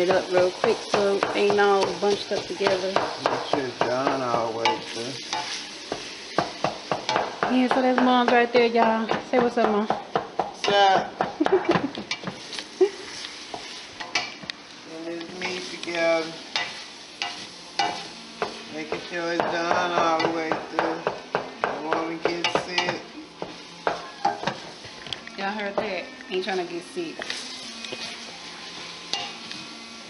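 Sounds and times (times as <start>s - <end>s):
meat sizzling: 0.0s - 30.0s.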